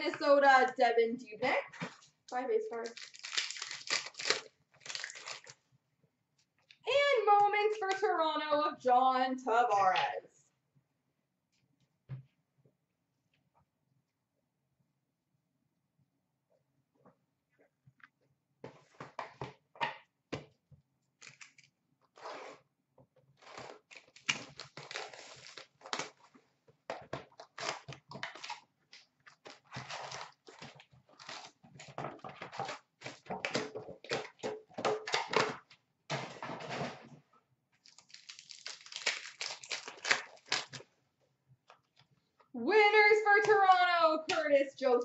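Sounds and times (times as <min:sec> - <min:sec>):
wrappers ripping and crinkling: 0:02.7 - 0:05.6, 0:23.4 - 0:26.3, 0:27.4 - 0:31.6, 0:37.8 - 0:40.9.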